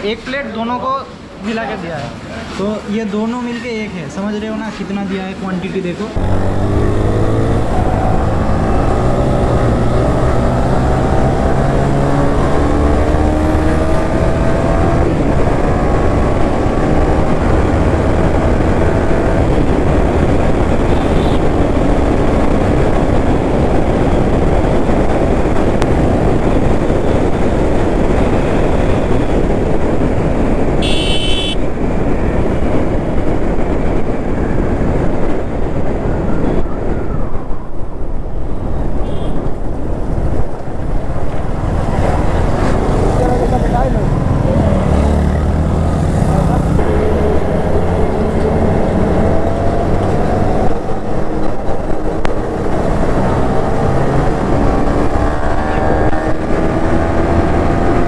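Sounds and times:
motorcycle engine accelerating: 6.2 - 27.8, 41.8 - 58.0
wind rush on microphone: 6.2 - 58.0.

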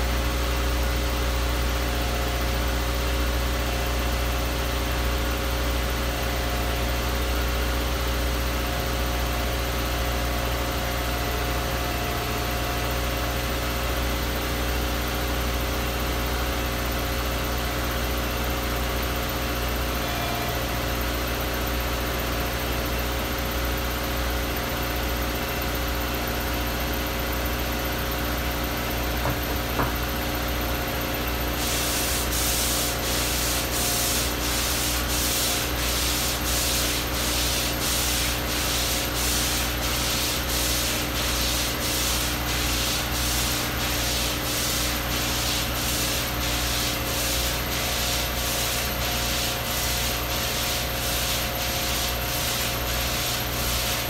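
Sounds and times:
washer fluid spraying: 31.5 - 54.0.

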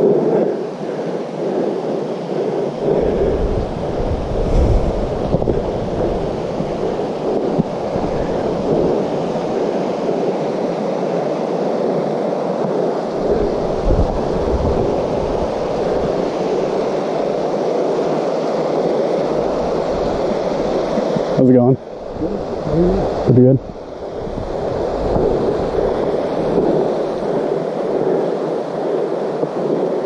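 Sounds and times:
wind buffeting microphone: 0.0 - 30.0
mountain creek rushing: 13.1 - 27.9.

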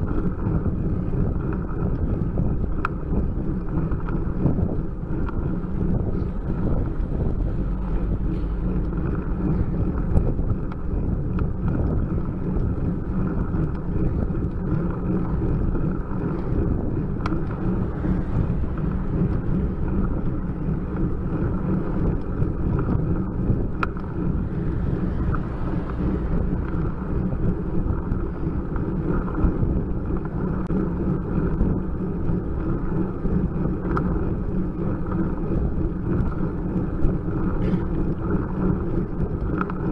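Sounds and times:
road noise: 0.0 - 39.9
wind buffeting microphone: 0.0 - 39.9
faint clicks: 39.1 - 39.9.

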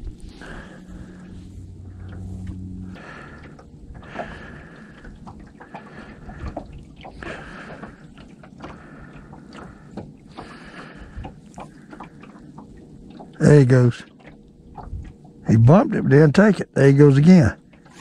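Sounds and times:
electric trolling motor humming: 0.0 - 13.6
light clicks and knocks: 4.9 - 13.4.

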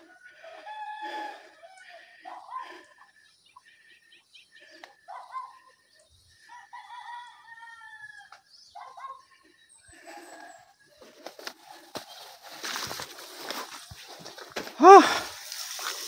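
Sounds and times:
rooster crowing: 0.0 - 1.9, 6.5 - 8.4.

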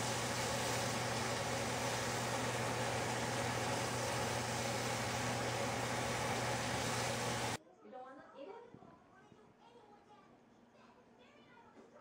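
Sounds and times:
steady hiss: 0.0 - 7.6.

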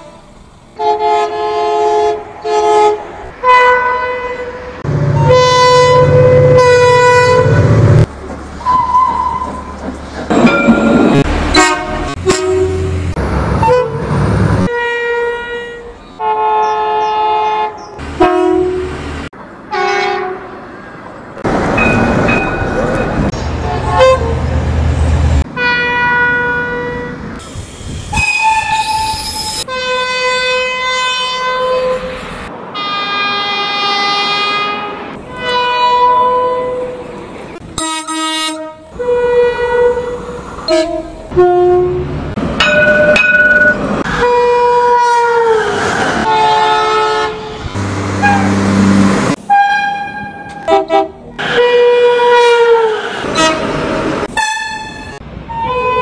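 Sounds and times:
train horn blasts: 0.8 - 7.8, 11.4 - 13.0, 13.6 - 14.1, 14.7 - 19.0, 19.7 - 20.5, 23.6 - 24.5, 25.5 - 27.2, 28.1 - 32.1, 32.8 - 37.0, 37.8 - 42.1, 44.2 - 56.0.

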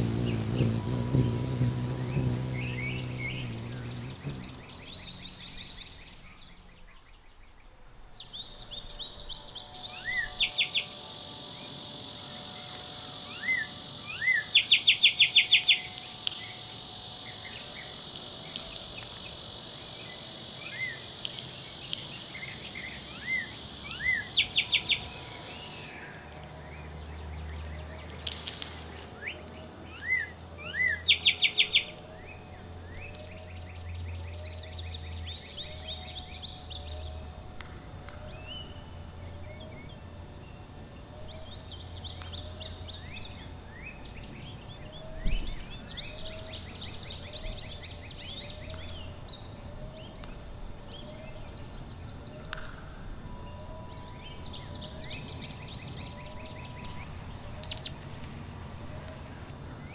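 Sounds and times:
steady high buzz: 0.0 - 44.8
songbirds trilling and chirping: 0.0 - 59.9.

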